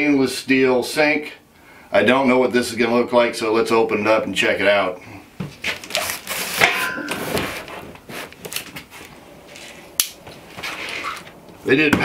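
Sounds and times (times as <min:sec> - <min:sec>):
cardboard box scraping: 0:05.6 - 0:06.6, 0:10.5 - 0:11.3.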